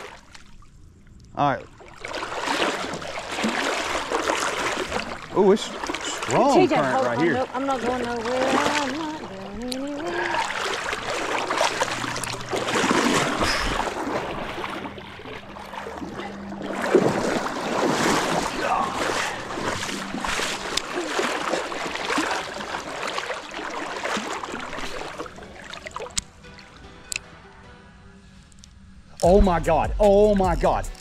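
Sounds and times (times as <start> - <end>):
wading splashes: 0.0 - 0.8, 1.4 - 26.8
creek water rushing: 2.1 - 26.2.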